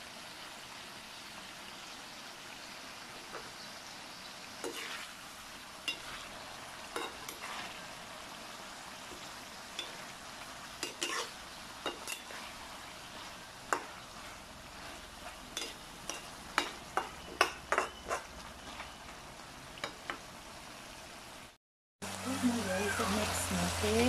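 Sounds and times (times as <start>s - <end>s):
chicken sizzling in a metal pan: 0.0s - 24.0s
spatula scraping a metal pan: 4.6s - 5.2s, 5.9s - 6.4s, 7.0s - 7.8s, 10.8s - 19.1s.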